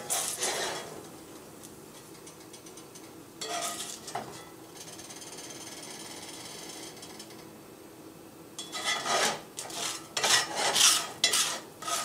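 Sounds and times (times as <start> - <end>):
spatula scraping cast iron skillet: 0.0 - 0.9, 3.4 - 4.0, 8.6 - 12.0.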